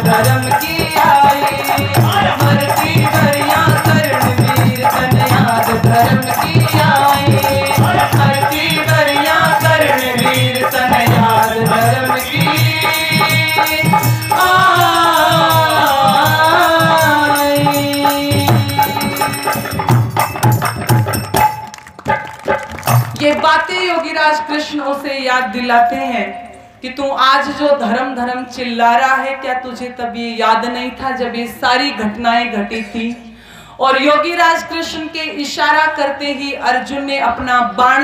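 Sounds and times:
woman singing: 0.0 - 19.6, 23.2 - 38.0
hand drum beating: 0.0 - 23.5
hand percussion strikes: 0.0 - 23.6
harmonium: 0.0 - 24.7.

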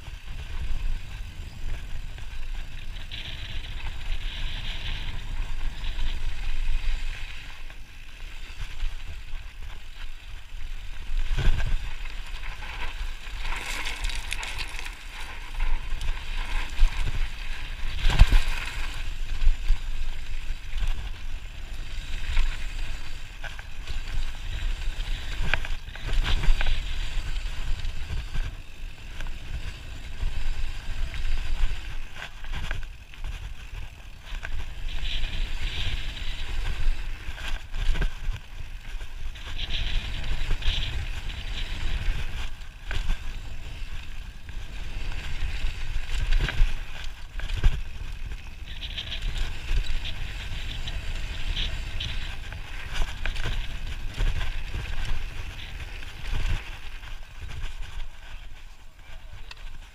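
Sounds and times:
wind rumble: 0.0 - 59.9
bike knocking on bumps: 11.3 - 19.0
tyres crunching on gravel: 12.8 - 15.9.

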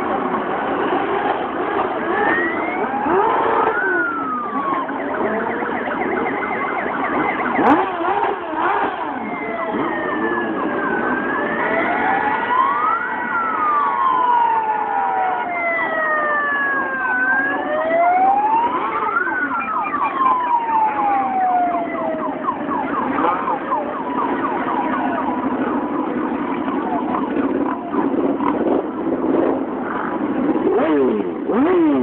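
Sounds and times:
motorcycle engines passing: 0.0 - 32.0
siren wailing: 1.8 - 32.0.

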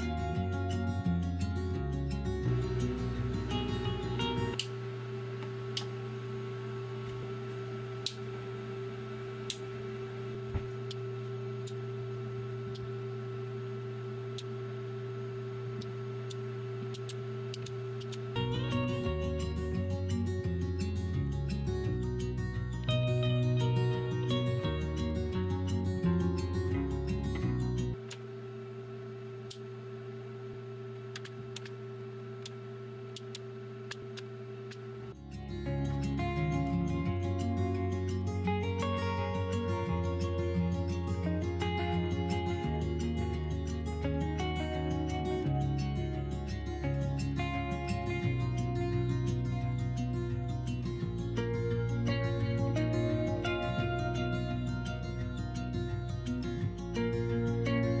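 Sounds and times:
guitar music: 0.0 - 28.0, 33.5 - 58.0
steady hum of held tones: 0.0 - 58.0
sharp clicks: 15.8 - 18.3, 31.1 - 31.8, 32.4 - 34.9.

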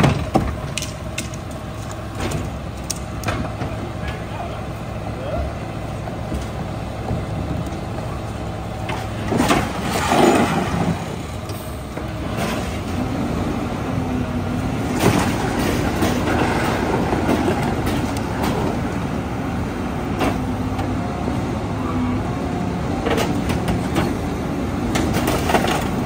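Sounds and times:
trash clattering and crunching: 0.0 - 4.3, 6.1 - 13.3, 14.5 - 19.1, 23.0 - 26.0
garbage truck engine and packer: 0.0 - 26.0.

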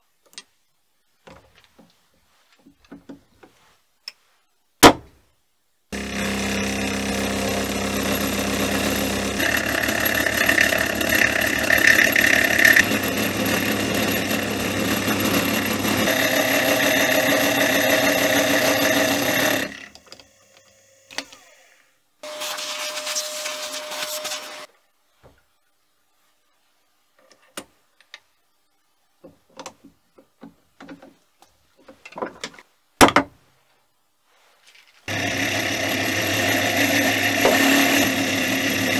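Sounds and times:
end mill cutting metal: 6.0 - 19.9, 35.1 - 38.9
milling machine motor whine: 6.0 - 19.9, 35.1 - 38.9.

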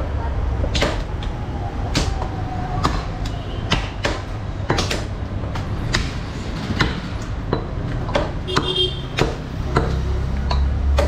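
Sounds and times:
cleavers chopping on wooden block: 1.9 - 6.1, 6.8 - 11.0.

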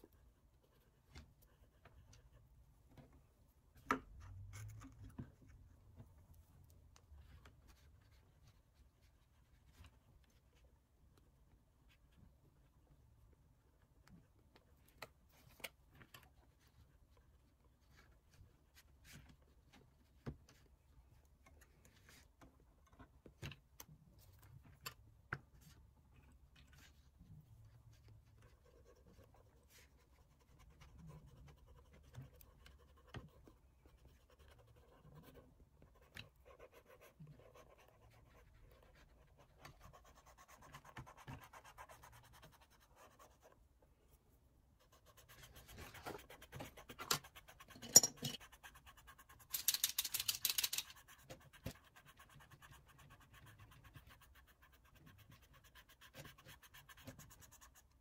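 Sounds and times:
oil pastel scratching on paper: 26.6 - 43.7, 44.7 - 47.8, 48.4 - 58.0.

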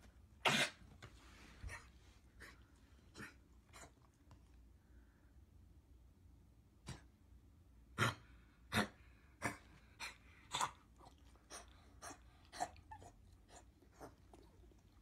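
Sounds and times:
dog coughing: 0.4 - 0.9, 8.0 - 10.8.

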